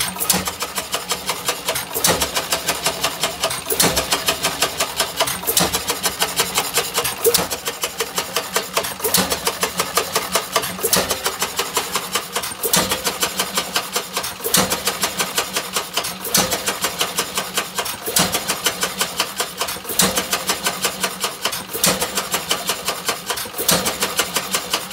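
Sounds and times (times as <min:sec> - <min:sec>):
stationary engine exhaust bangs: 0:00.0 - 0:20.7
valve gear clatter: 0:00.0 - 0:24.9.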